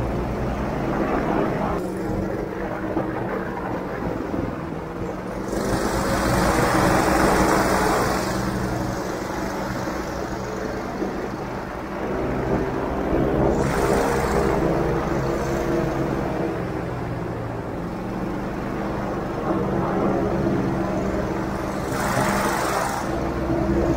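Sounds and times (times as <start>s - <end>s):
airboat engine and propeller: 0.0s - 23.9s.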